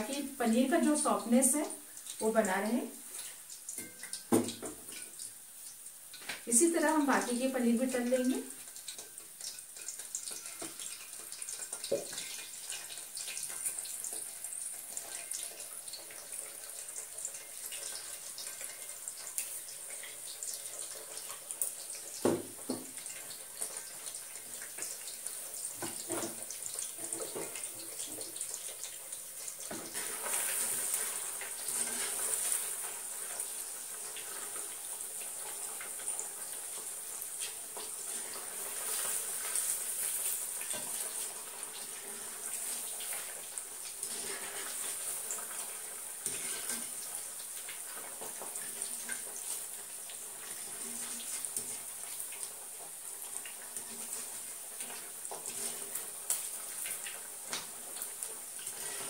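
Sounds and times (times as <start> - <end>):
food sizzling in hot oil: 0.0 - 59.0.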